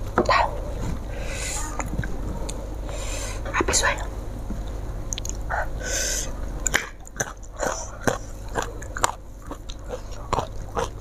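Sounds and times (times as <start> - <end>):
wet mouth clicks: 5.1 - 5.4
person chewing food: 6.6 - 11.0.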